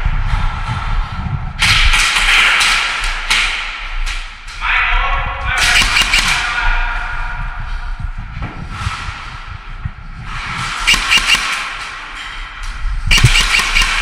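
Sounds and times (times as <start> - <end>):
airsoft guns firing: 5.6 - 6.6, 10.8 - 12.0, 13.1 - 14.0.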